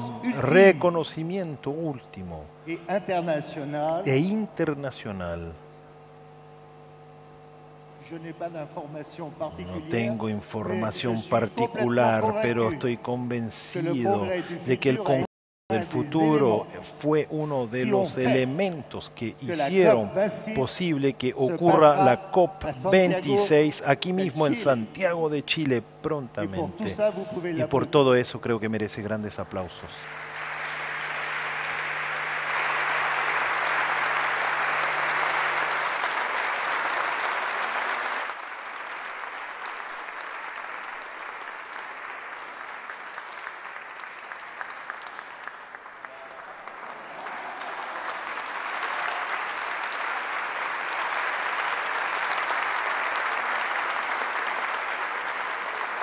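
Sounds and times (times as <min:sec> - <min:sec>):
audience applauding: 0:30.0 - 0:56.0.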